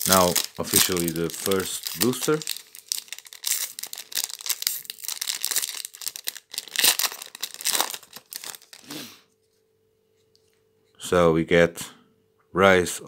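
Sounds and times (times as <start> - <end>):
foil wrapper tearing and crinkling: 0.0 - 9.0.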